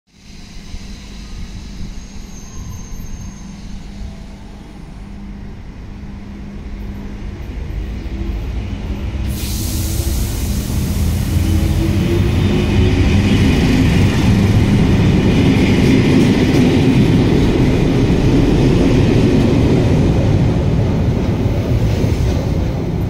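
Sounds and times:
electric train humming: 0:00.2 - 0:23.0
loud hiss: 0:09.2 - 0:12.8.

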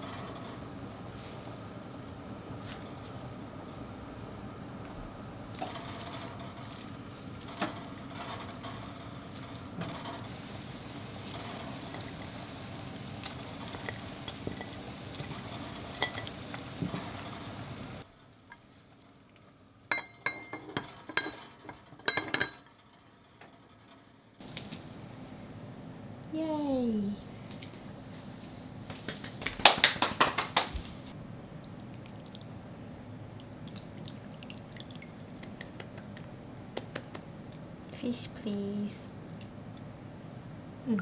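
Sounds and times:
soup simmering and bubbling: 0:05.5 - 0:19.9, 0:31.2 - 0:35.8
cookware clinking: 0:13.4 - 0:17.6, 0:19.9 - 0:22.6.

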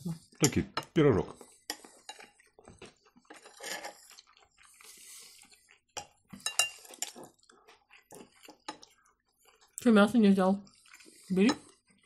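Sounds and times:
spoons scraping and clinking dishes: 0:00.4 - 0:09.6.

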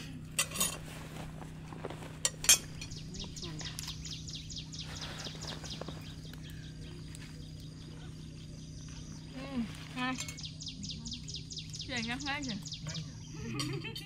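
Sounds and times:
steady low hum: 0:00.0 - 0:14.0
tableware clinking: 0:00.3 - 0:00.8, 0:02.2 - 0:03.0.

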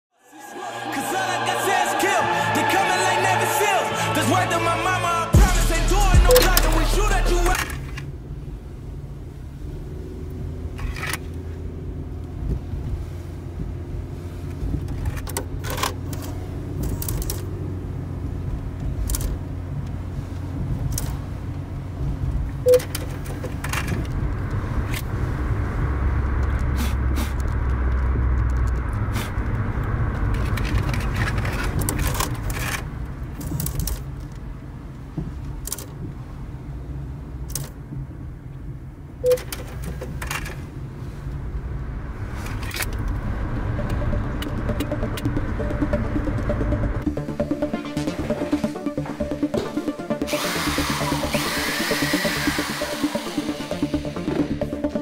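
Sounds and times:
car engine and road hum: 0:00.4 - 0:55.0
small rattles and clicks: 0:14.7 - 0:17.5, 0:18.8 - 0:19.4, 0:22.9 - 0:25.1, 0:27.4 - 0:34.4.

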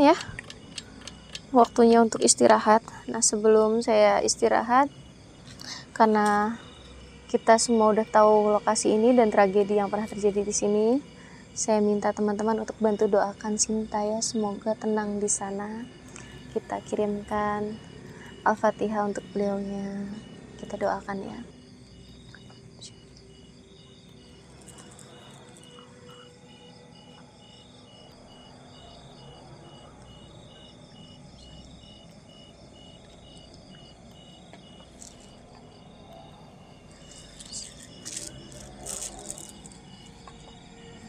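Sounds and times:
prayer beads clicking: 0:00.0 - 0:02.6, 0:24.5 - 0:25.8, 0:34.5 - 0:35.6, 0:36.9 - 0:40.5
crickets chirping: 0:00.0 - 0:41.0.

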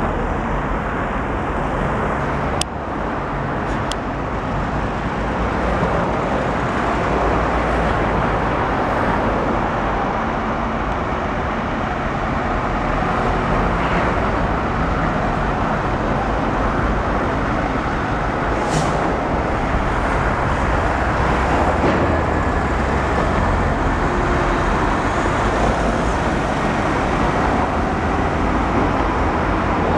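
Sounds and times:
rumble of heavy vehicles and machinery: 0:00.0 - 0:29.9
brief high hiss: 0:18.6 - 0:19.0.

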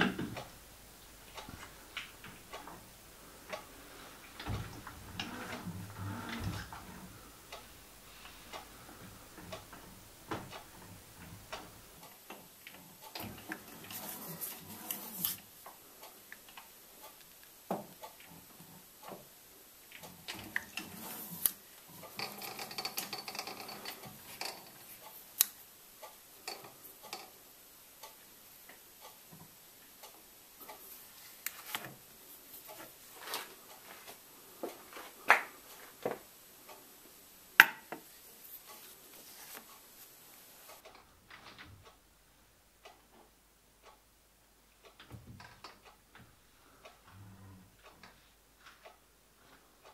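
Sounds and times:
rattling: 0:00.0 - 0:12.0
metallic clicks and knocks on lathe: 0:22.1 - 0:24.8, 0:26.4 - 0:27.4.

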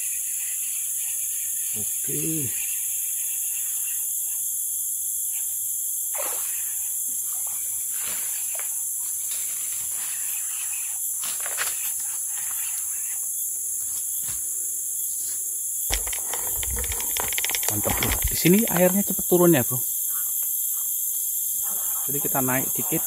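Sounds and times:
insects chorus: 0:00.0 - 0:23.0
handling knocks and rustles: 0:15.9 - 0:19.2.

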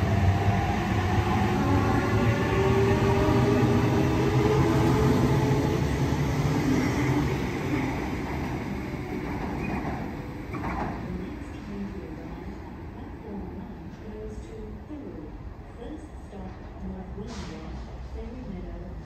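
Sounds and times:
electric train passing: 0:00.0 - 0:14.5.

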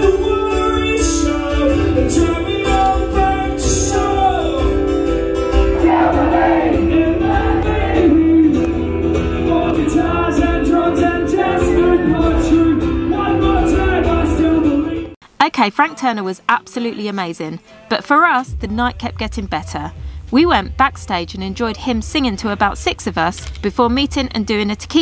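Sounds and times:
live rock music with singing: 0:00.0 - 0:15.2.

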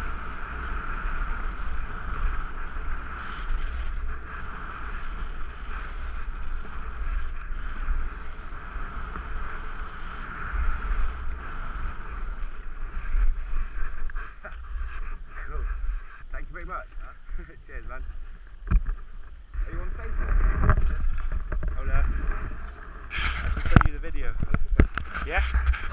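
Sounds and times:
skis sliding on snow: 0:00.0 - 0:18.4, 0:25.0 - 0:25.9
wind buffeting camera: 0:00.0 - 0:25.9.

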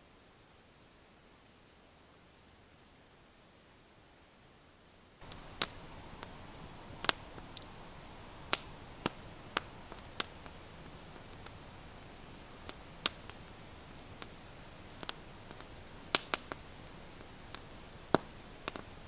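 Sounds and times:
campfire crackling: 0:05.1 - 0:19.0.

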